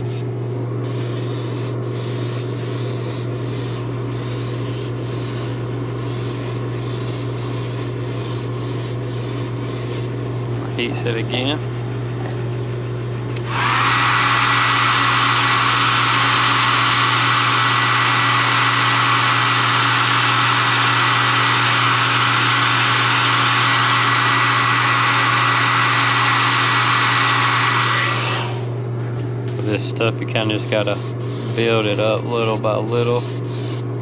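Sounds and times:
high motor whine: 0.0 - 10.2, 14.6 - 34.0
hot-air blower running: 0.0 - 34.0.

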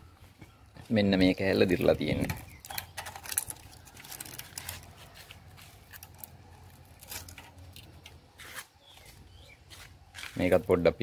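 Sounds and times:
metal bracket clicks and scrapes: 2.2 - 8.6.

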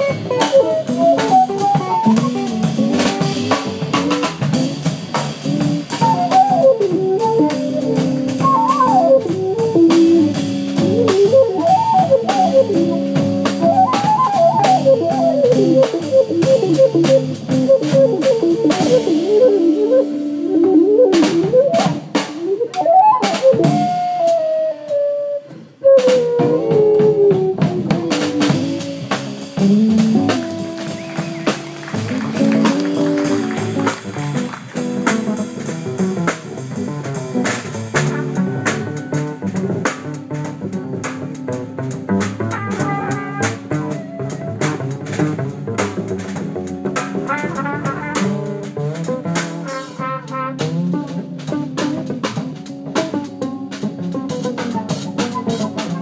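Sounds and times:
sliding lead guitar line: 0.0 - 25.2, 26.0 - 48.1
jazz band playing: 0.0 - 56.0.

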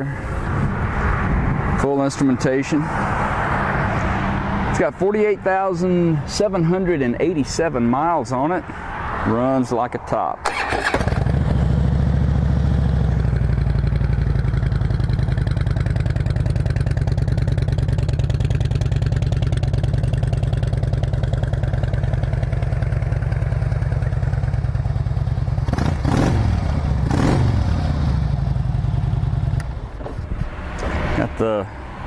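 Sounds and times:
motorcycle engine idling: 10.5 - 29.8.

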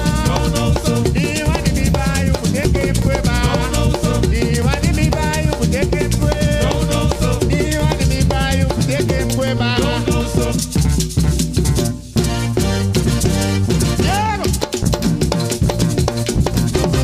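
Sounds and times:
person singing: 0.0 - 10.8, 14.0 - 14.7
drums: 0.0 - 17.0
rattling shakers: 10.1 - 17.0.

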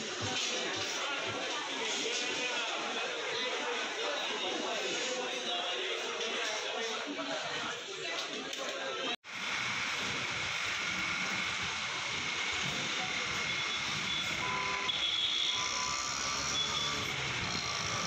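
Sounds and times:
short high beeping tones: 13.5 - 17.2.

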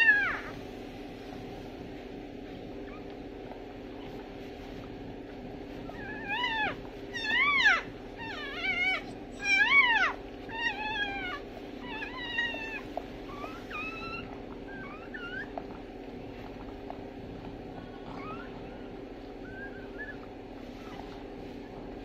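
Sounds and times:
puppy squealing: 0.0 - 0.6, 5.8 - 15.7, 18.0 - 21.2.

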